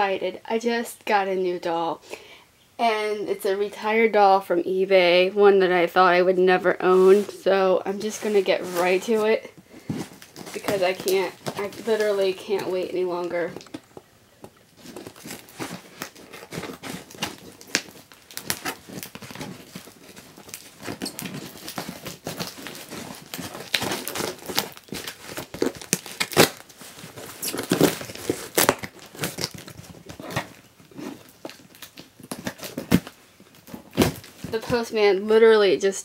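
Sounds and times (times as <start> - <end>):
cardboard rubbing and scraping: 6.8 - 13.6, 14.8 - 31.4
packing tape ripping: 8.1 - 13.9, 14.8 - 34.7.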